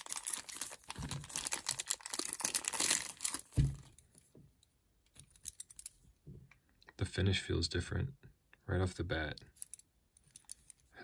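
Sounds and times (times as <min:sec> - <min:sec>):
plastic bag crinkling: 0:00.0 - 0:04.0.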